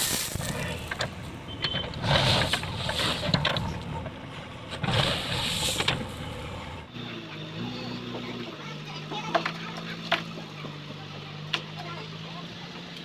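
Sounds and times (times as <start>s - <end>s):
bucket scraping through stone: 0.0s - 4.1s, 4.7s - 6.4s
stones rattling and sliding: 0.0s - 6.3s
diesel engine running: 0.0s - 13.0s.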